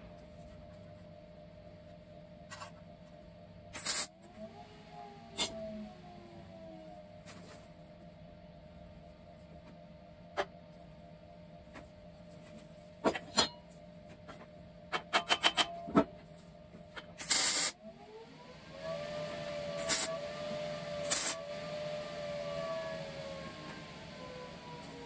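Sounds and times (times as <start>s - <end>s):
metal tray clicks and knocks: 15.0s - 15.8s
loud burst of noise: 21.0s - 21.4s.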